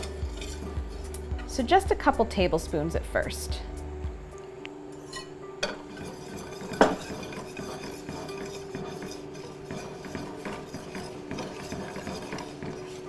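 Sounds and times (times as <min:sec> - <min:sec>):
wire whisk scraping metal pan: 0:00.0 - 0:01.6, 0:05.0 - 0:13.0
whisk clanking on pan: 0:05.6 - 0:13.0.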